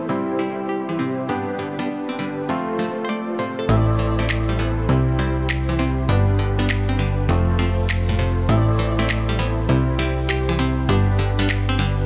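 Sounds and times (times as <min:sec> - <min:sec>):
gentle instrumental music: 0:00.0 - 0:12.0.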